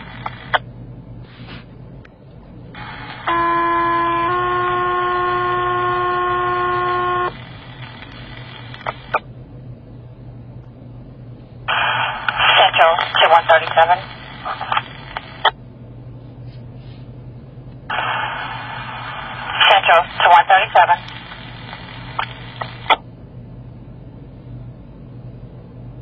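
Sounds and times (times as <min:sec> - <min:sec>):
radio open-channel hiss: 0:00.0 - 0:00.6, 0:02.8 - 0:09.2, 0:11.7 - 0:15.5, 0:17.9 - 0:23.0
radio squelch clicks: 0:00.2 - 0:00.6, 0:07.8 - 0:09.2, 0:11.7 - 0:15.6, 0:19.5 - 0:23.0
two-tone radio page: 0:02.8 - 0:09.2, 0:11.7 - 0:15.5, 0:17.9 - 0:23.0.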